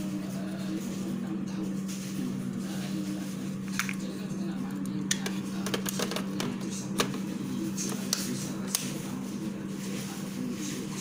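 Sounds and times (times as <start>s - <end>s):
steady low hum: 0.0s - 11.0s
plastic clicks and knocks: 5.1s - 7.2s.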